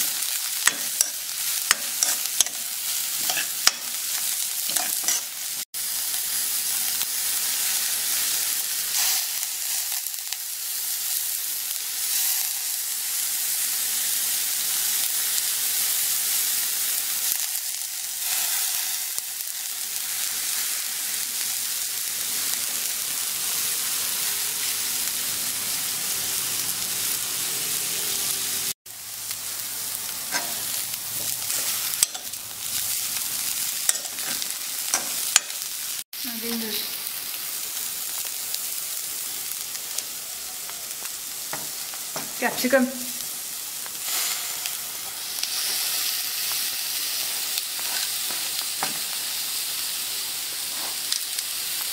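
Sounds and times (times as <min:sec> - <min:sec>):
metal spoon scraping a wok: 0:00.0 - 0:05.5, 0:30.2 - 0:32.4, 0:33.8 - 0:35.7
food sizzling in hot oil: 0:00.0 - 0:51.9.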